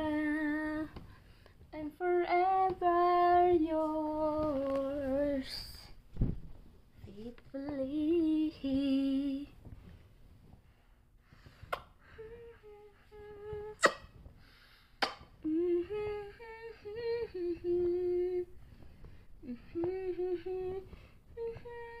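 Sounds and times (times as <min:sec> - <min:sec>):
woman humming a lullaby: 0:12.1 - 0:13.9, 0:15.4 - 0:18.5, 0:19.4 - 0:22.0.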